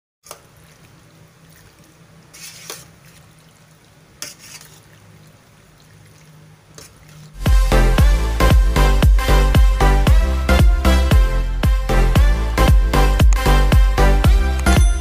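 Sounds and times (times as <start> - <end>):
spoon scraping metal pot: 4.2 - 4.8
spoon stirring pasta in pot: 4.2 - 5.0.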